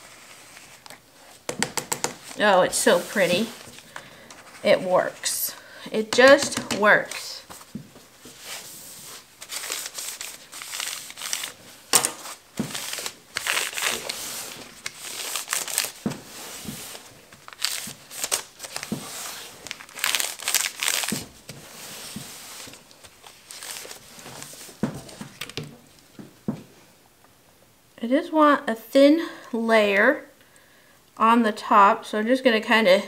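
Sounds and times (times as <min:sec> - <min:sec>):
paper towel crinkling and rustling: 0:02.2 - 0:05.6, 0:07.0 - 0:25.9.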